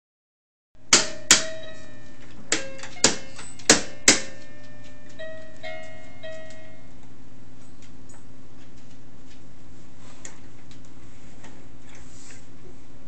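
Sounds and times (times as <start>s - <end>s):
plastic toy tray being banged: 0.9s - 1.7s, 2.5s - 4.4s.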